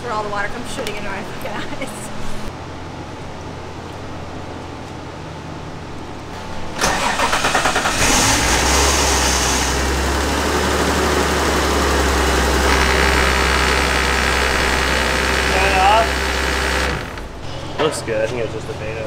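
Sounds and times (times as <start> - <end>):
car engine cranking and idling: 6.7 - 17.5.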